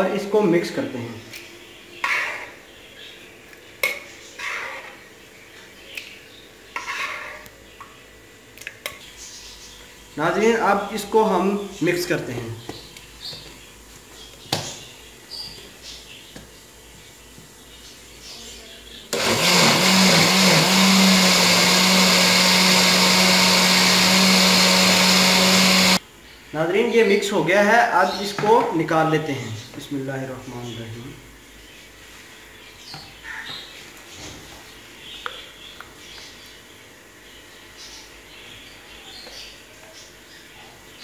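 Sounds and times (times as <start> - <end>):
mixer grinder motor blending: 19.1 - 26.0.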